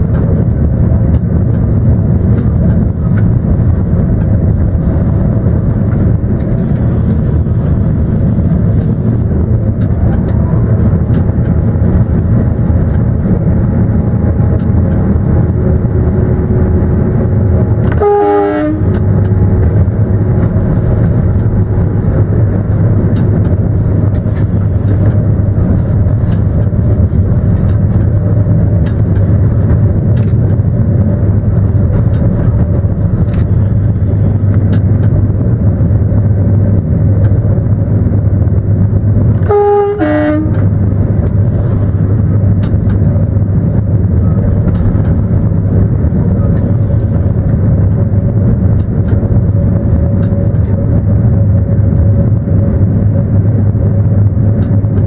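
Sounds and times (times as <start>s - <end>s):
train rumbling on rails: 0.0s - 55.0s
train horn falling in pitch: 17.8s - 19.6s, 39.4s - 40.7s.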